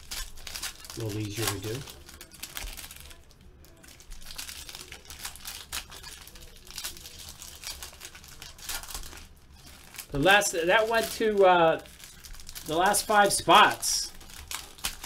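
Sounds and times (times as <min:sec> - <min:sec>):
wrappers crinkling and tearing: 0:00.0 - 0:15.0.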